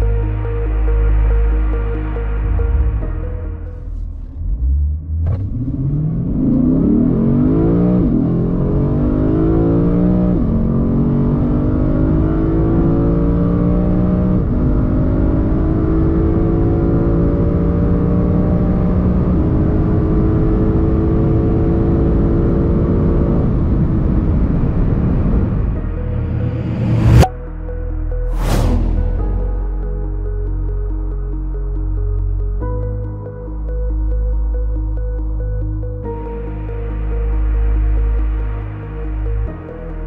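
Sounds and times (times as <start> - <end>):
car engine accelerating with gear shifts: 3.7 - 27.3.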